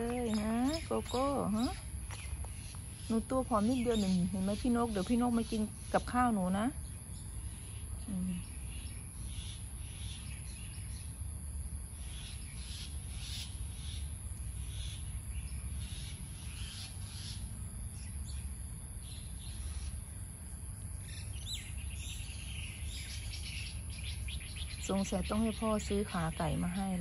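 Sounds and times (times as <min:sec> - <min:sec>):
birds chirping: 0:00.0 - 0:11.3, 0:12.0 - 0:27.0
insects buzzing: 0:00.0 - 0:27.0.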